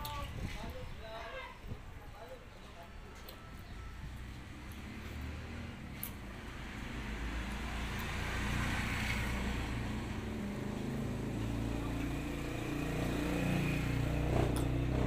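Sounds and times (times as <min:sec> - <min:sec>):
vehicle engine rumbling: 0:03.4 - 0:15.0.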